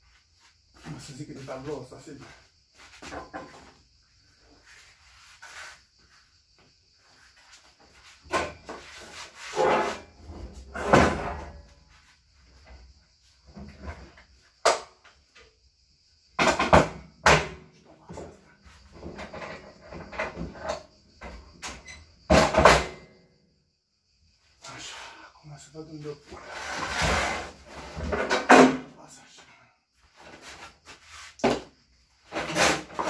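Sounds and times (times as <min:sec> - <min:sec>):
objects knocking and clattering: 0:03.0 - 0:03.8, 0:16.4 - 0:22.9, 0:27.8 - 0:28.9.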